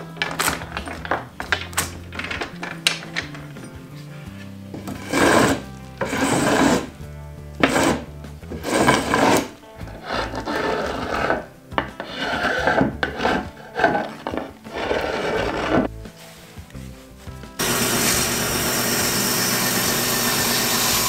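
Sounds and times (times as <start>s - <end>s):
quiet background music: 0.0s - 21.0s
hand tool scraping wood: 4.3s - 7.0s, 7.6s - 15.9s.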